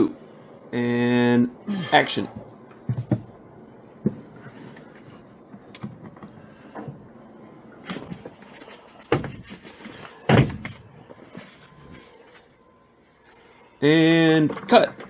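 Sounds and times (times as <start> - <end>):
knocks and thumps: 2.3 - 3.4, 4.0 - 4.4, 9.0 - 10.8
handling noise: 2.3 - 15.0.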